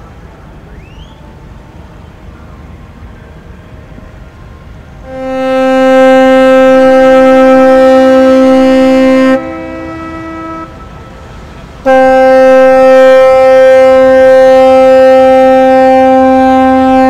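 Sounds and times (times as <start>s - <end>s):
fainter second horn tone: 5.0s - 10.8s
ship's horn blasts: 5.0s - 17.0s.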